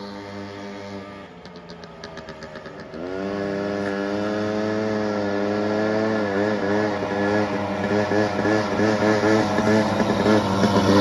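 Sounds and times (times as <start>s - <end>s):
atv engine revving: 0.0s - 11.0s.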